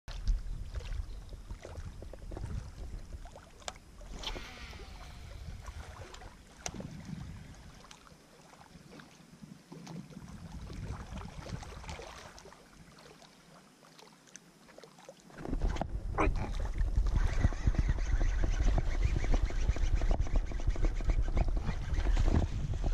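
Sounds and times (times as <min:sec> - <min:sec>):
small waves lapping: 0:00.1 - 0:22.9
wind buffeting microphone: 0:00.2 - 0:03.4, 0:04.1 - 0:07.8, 0:10.0 - 0:12.1, 0:15.4 - 0:22.9.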